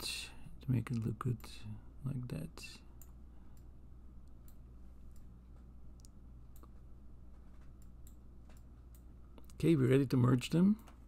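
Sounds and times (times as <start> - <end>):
faint low hum: 0.0 - 11.0
computer mouse clicking: 3.0 - 5.3.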